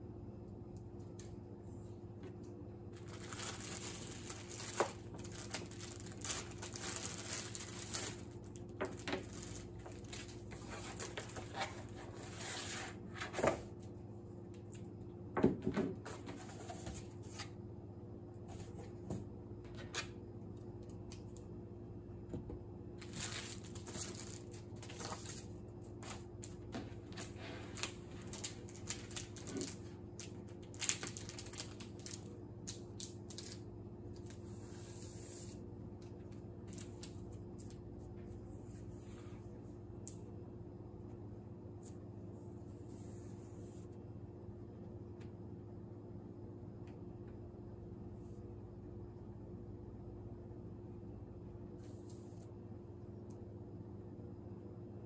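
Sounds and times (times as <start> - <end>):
steady low hum: 0.0 - 55.0
plastic bags crinkling: 2.9 - 12.3, 23.0 - 33.6.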